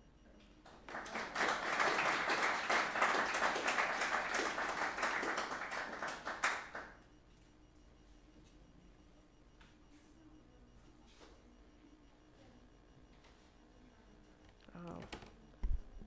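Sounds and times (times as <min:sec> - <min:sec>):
audience applauding: 0:00.8 - 0:07.0.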